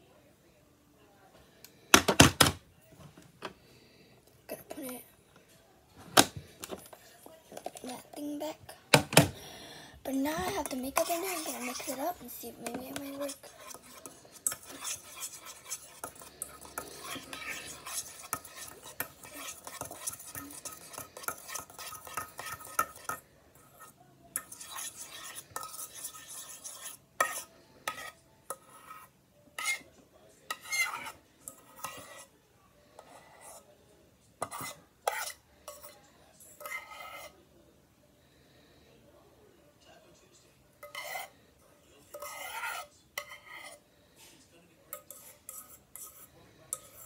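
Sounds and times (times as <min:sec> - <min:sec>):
fork scraping slime in metal pot: 0:10.1 - 0:29.9, 0:30.5 - 0:32.3, 0:33.0 - 0:33.7, 0:34.4 - 0:37.4, 0:40.8 - 0:41.4, 0:42.1 - 0:43.8, 0:44.9 - 0:47.0.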